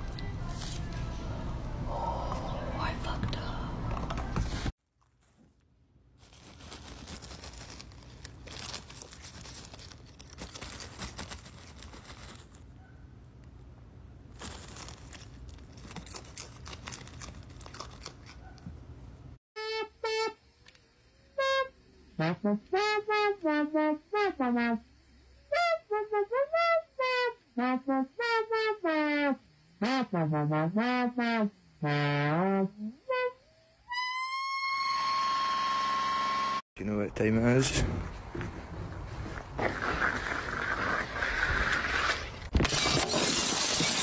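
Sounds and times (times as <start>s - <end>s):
plastic bag crinkling: 4.8s - 12.7s, 14.3s - 18.5s.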